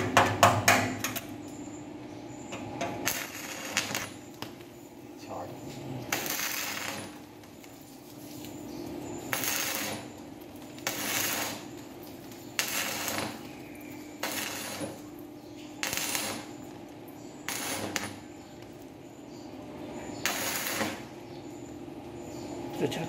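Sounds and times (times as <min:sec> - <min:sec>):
welding arc crackling and sizzling: 0:02.9 - 0:19.1, 0:20.2 - 0:21.2.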